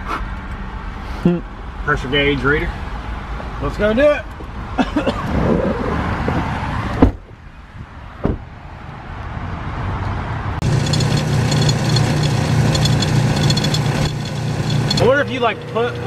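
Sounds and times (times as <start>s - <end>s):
air pump humming: 10.6s - 16.0s.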